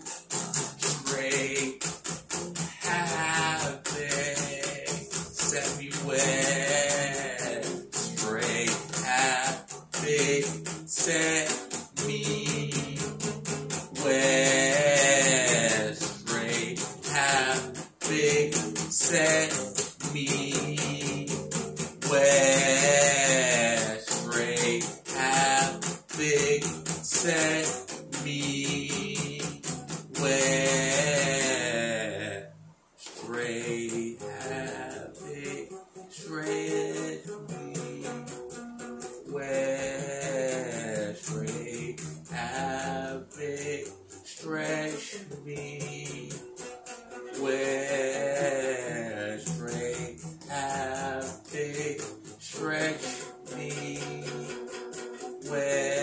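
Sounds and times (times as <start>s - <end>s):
acoustic guitar strumming: 0.0s - 56.0s
man singing: 0.0s - 56.0s.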